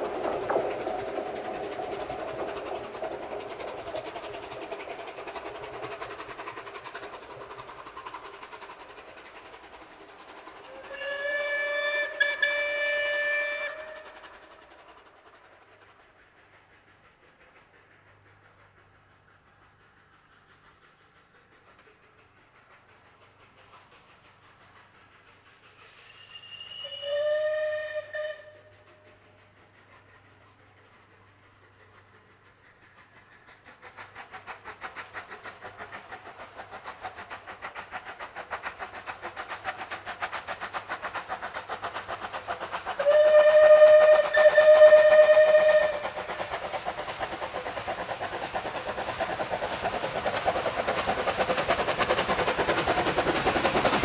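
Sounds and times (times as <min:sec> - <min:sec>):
steam locomotive exhaust beats: 0:00.0 - 0:54.0
steam locomotive whistle: 0:10.7 - 0:14.3, 0:26.0 - 0:29.2, 0:43.0 - 0:46.2.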